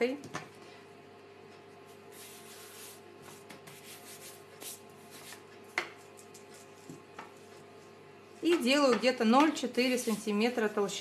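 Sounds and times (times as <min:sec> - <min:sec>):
rolling pin rubbing on dough: 0:01.9 - 0:07.7, 0:09.8 - 0:10.7.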